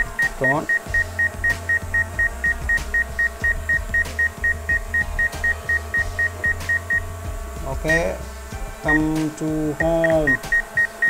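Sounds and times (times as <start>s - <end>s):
short high alarm beeps: 0.0s - 7.1s, 10.0s - 11.0s.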